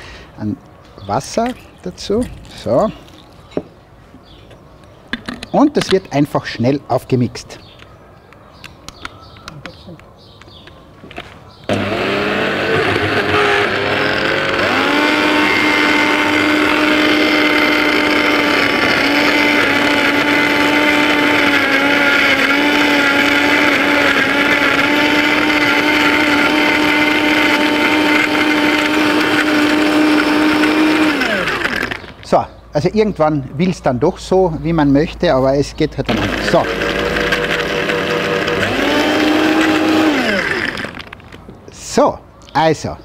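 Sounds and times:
blender motor: 11.7 - 32.1, 36.1 - 41.2.

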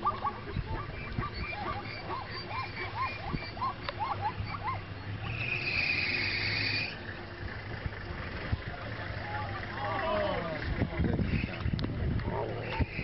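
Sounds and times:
rising and falling animal calls: 0.0 - 7.1.

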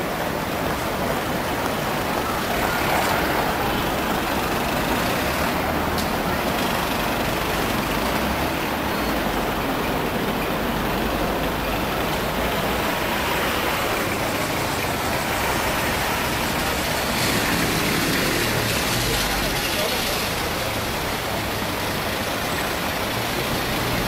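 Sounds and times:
road traffic hum: 0.0 - 24.0.

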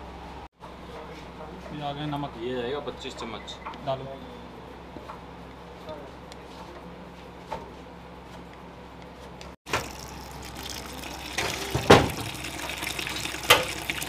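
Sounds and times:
water pouring into metal pot: 9.7 - 14.0.

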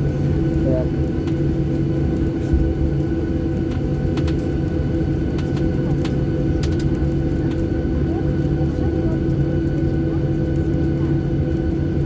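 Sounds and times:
jet engine cabin hum: 0.0 - 12.0.

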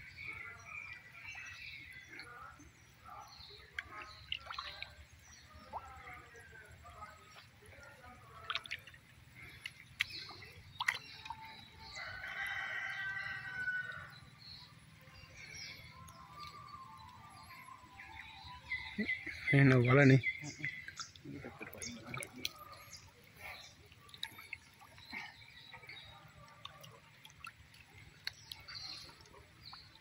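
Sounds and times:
water dripping and splashing: 0.1 - 30.0
rooster crowing: 12.0 - 14.1.

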